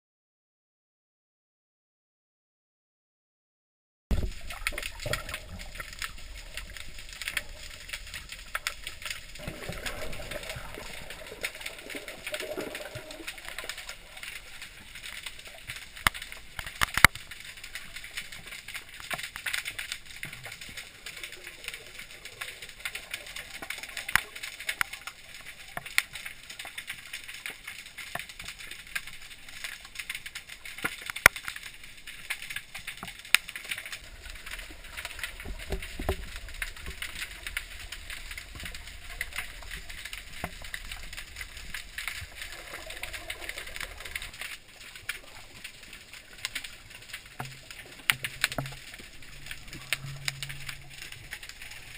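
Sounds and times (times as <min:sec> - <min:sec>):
low underwater gurgling: 0:04.1 - 0:18.2, 0:33.5 - 0:51.9
crackling clicks: 0:04.1 - 0:51.9
muffled underwater hiss: 0:04.1 - 0:51.9.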